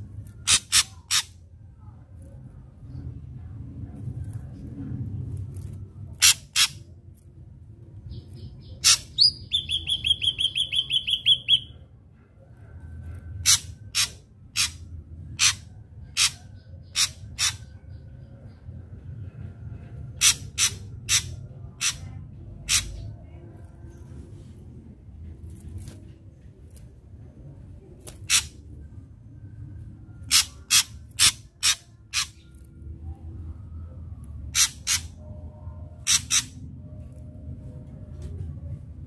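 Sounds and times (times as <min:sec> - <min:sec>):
bird singing sharp notes: 0:08.1 - 0:11.8.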